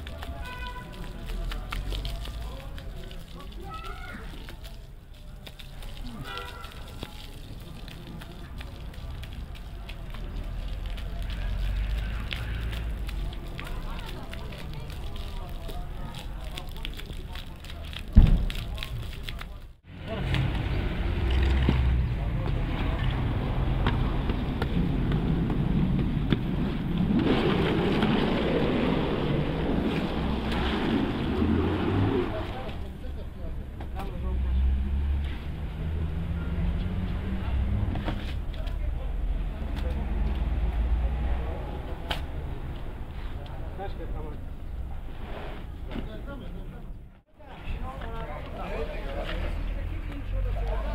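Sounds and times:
hose water splashing on rug: 0.0 - 33.0
wet carpet dragged on concrete: 45.0 - 45.9.

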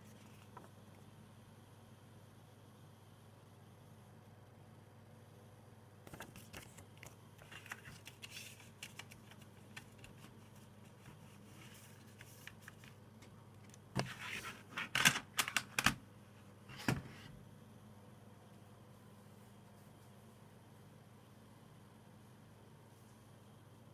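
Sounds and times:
paper rustling: 6.1 - 13.0.

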